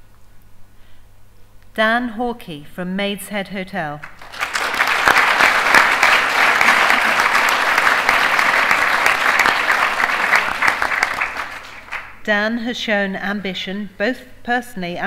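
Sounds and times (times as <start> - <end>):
audience applauding: 4.0 - 12.2.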